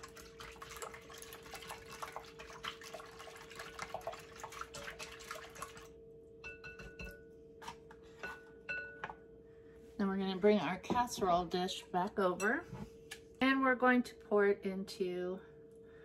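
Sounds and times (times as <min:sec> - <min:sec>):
eggs beaten in a bowl: 0:00.0 - 0:09.0
faint steady hum: 0:00.0 - 0:16.0.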